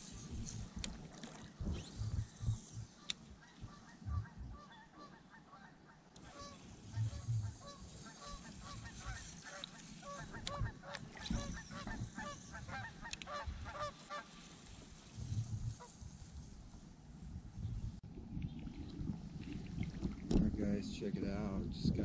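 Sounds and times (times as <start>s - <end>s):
geese honking: 3.0s - 14.4s.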